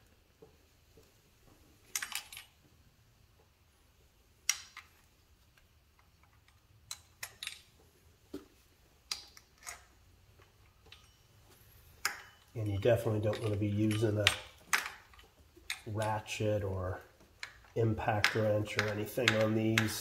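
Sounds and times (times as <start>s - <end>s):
tools clinking on metal: 1.9s - 2.6s, 9.1s - 11.4s, 12.0s - 16.4s, 17.4s - 20.0s.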